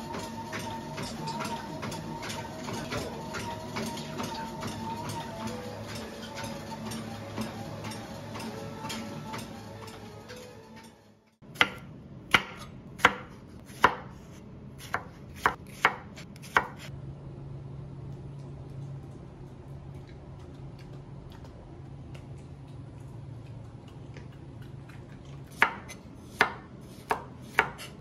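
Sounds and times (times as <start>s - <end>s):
treadmill motor whine: 0.0s - 11.4s.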